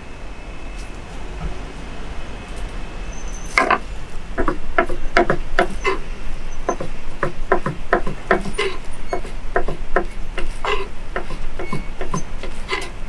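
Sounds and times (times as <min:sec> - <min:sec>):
knife chopping on cutting board: 0:09.2 - 0:12.2.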